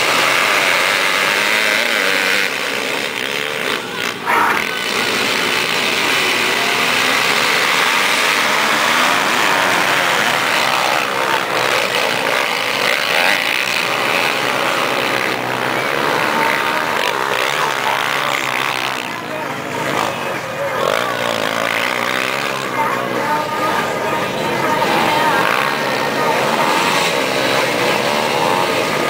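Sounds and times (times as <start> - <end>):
motocross bikes revving: 0.0 - 29.0.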